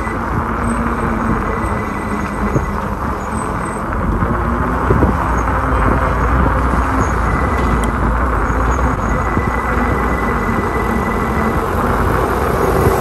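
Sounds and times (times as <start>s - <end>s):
road noise: 0.0s - 13.0s
wind rumble on microphone: 0.0s - 13.0s.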